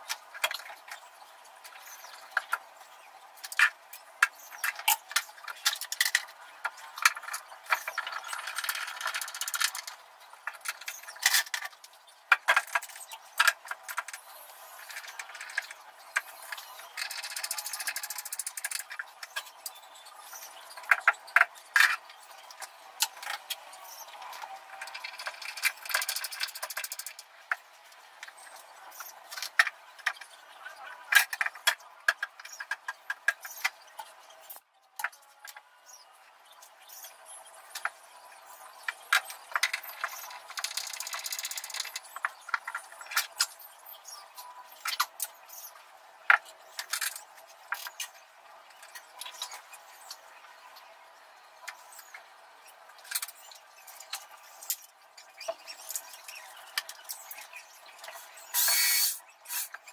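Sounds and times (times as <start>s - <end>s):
screwdriver and screws clicking: 58.6s - 59.8s.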